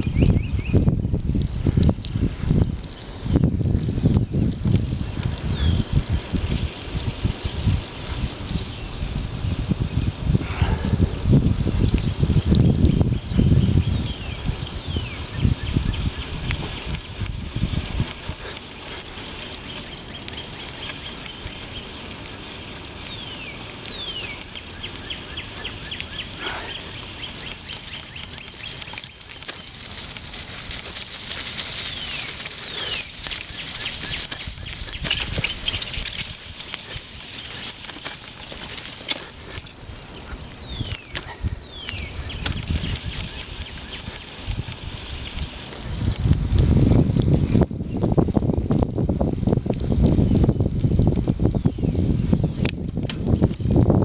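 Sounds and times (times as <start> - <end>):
birds whistling: 0.0 - 1.0, 5.5 - 6.7, 23.0 - 29.6, 31.8 - 39.4, 40.0 - 44.5, 51.4 - 52.7
wind on microphone: 0.0 - 21.9, 23.6 - 54.0
bicycle rolling over wet pavement: 0.0 - 54.0.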